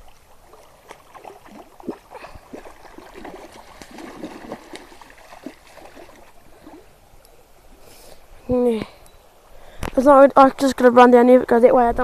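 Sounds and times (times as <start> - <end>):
fish splashing in water: 0.0 - 6.8.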